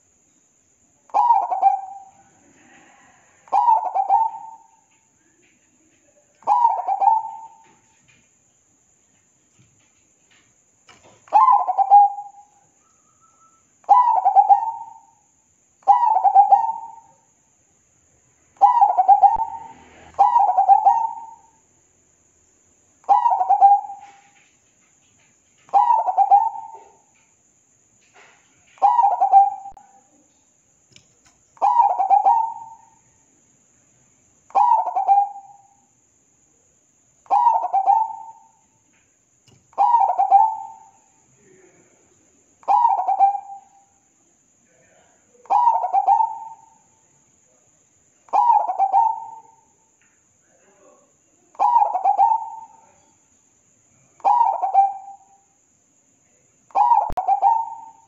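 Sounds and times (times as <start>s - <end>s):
dove cooing: 1.2s - 4.8s, 6.4s - 7.8s, 11.3s - 12.5s, 13.9s - 15.1s, 15.8s - 17.0s, 18.6s - 21.5s, 23.1s - 24.4s, 25.7s - 27.1s, 28.8s - 30.0s, 31.6s - 32.9s, 34.5s - 35.6s, 37.3s - 38.6s, 39.7s - 40.9s, 42.6s - 43.8s, 45.5s - 46.8s, 48.3s - 49.6s, 51.6s - 53.0s, 54.2s - 55.2s, 56.7s - 58.0s.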